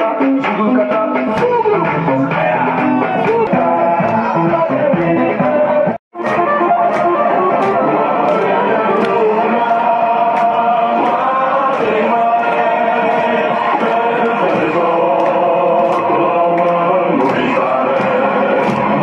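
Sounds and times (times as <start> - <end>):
crowd chanting and singing: 0.0 - 19.0
party music: 0.0 - 19.0
sharp claps: 6.2 - 19.0.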